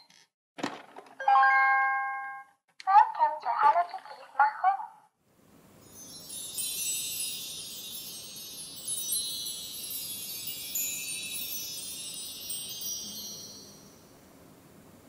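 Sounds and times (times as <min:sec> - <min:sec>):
twinkling chimes: 0:05.8 - 0:14.4.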